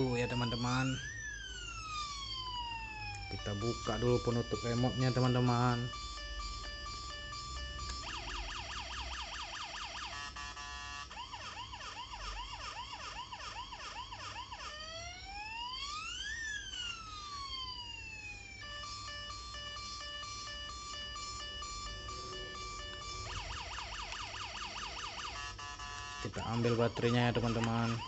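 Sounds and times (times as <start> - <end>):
toy siren wailing: 0.0 - 28.0
beeping tune: 3.3 - 8.6, 18.7 - 23.9.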